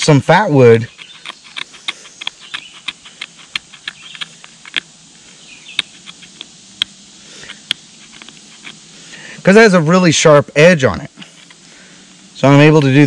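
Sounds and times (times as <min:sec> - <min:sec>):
striker scraping wood: 0:00.0 - 0:09.0, 0:11.2 - 0:11.8.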